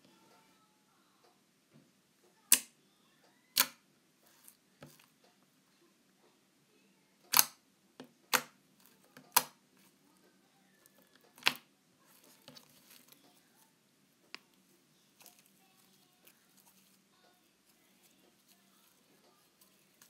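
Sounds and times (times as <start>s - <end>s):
soft rustling: 12.0s - 20.0s.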